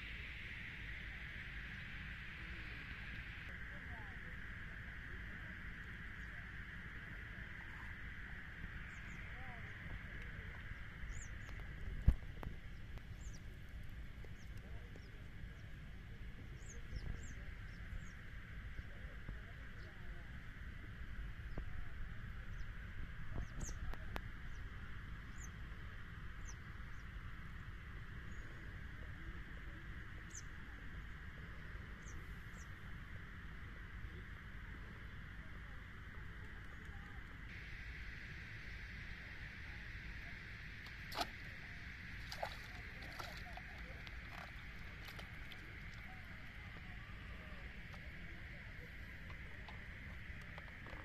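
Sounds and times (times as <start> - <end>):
faint steady hiss: 0.0 - 51.0
fish splashing in water: 40.7 - 46.5.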